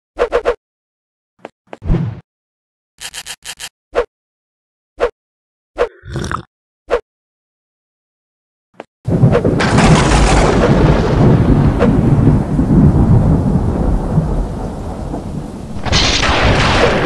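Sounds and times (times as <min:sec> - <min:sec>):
low thunder rumble: 0:09.1 - 0:17.0
thunder crash: 0:09.1 - 0:17.0.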